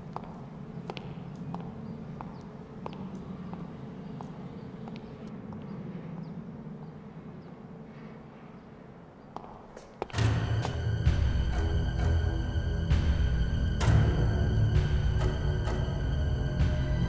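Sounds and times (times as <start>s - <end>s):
footsteps on concrete: 0.0s - 7.1s, 9.3s - 11.3s
steady low hum: 0.0s - 17.0s.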